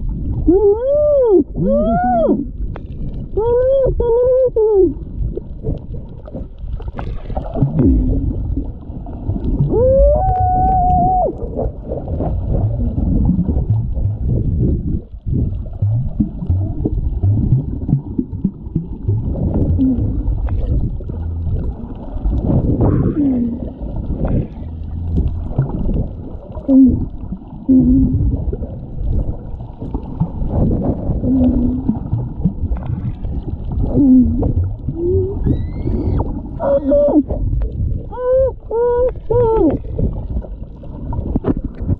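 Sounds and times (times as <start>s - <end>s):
low underwater rumble: 0.0s - 41.9s
whale song moaning calls: 0.4s - 2.6s, 9.6s - 14.3s, 26.5s - 28.5s, 31.1s - 32.1s, 33.8s - 39.8s.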